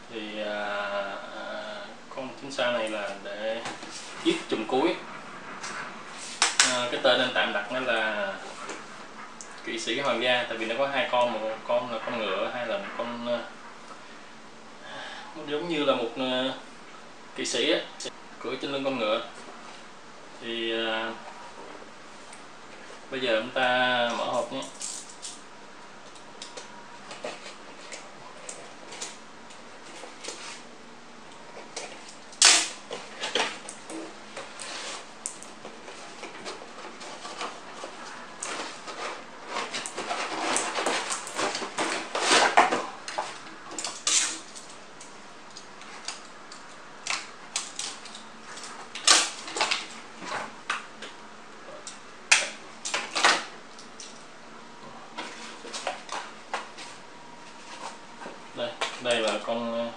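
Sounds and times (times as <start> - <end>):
cardboard box being unpacked: 35.9 - 43.4.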